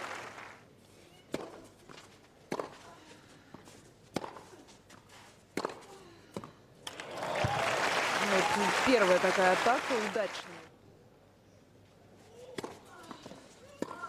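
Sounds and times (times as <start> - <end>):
crowd applause: 0.0 - 0.6, 6.9 - 10.7
tennis ball struck with rackets: 2.5 - 2.8, 4.1 - 4.5, 5.6 - 6.5, 12.5 - 14.0.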